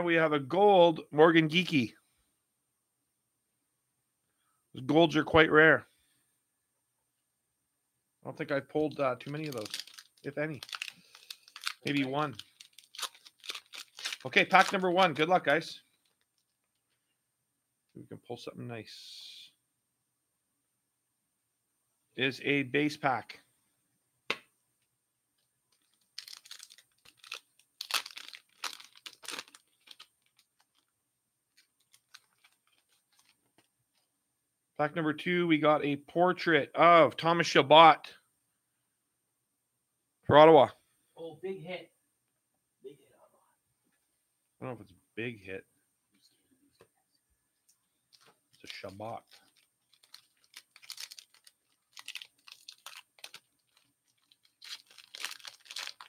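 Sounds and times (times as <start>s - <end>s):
foil wrapper crackling: 9.2s - 15.2s, 25.7s - 30.9s, 31.5s - 33.4s, 48.1s - 56.0s
cards rustling and clicking: 9.2s - 15.3s, 25.7s - 30.9s, 31.5s - 34.1s, 48.1s - 56.0s.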